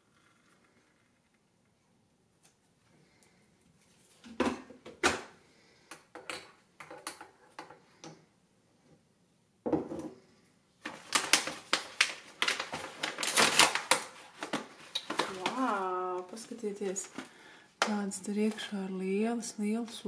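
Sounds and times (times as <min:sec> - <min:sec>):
foil pouch crackling open: 0:10.8 - 0:17.2.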